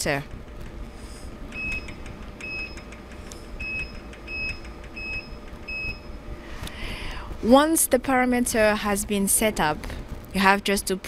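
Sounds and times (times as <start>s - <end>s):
low steady hum: 0.0s - 11.0s
short high key beeps: 1.5s - 2.9s, 3.6s - 6.2s.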